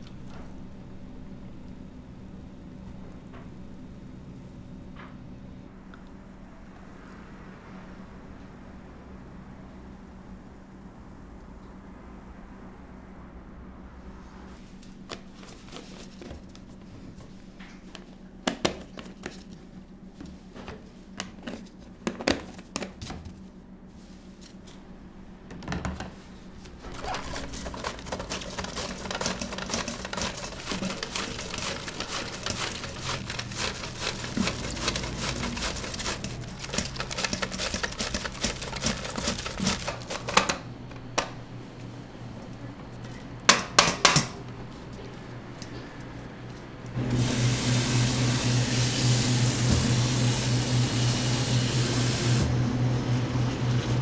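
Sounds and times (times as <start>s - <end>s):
steady low hum: 0.0s - 47.1s
kitchen clicks and knocks: 35.4s - 41.4s, 43.5s - 44.4s.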